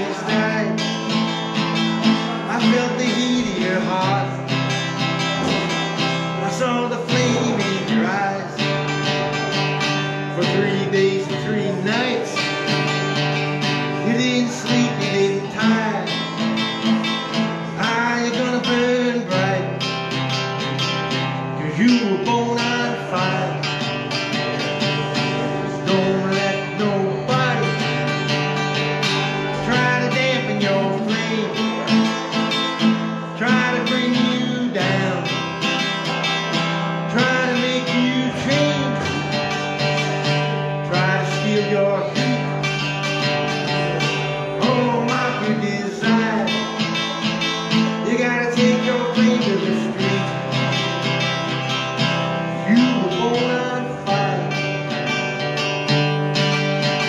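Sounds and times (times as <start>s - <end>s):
hollow-body guitar picking chords: 0.0s - 57.0s.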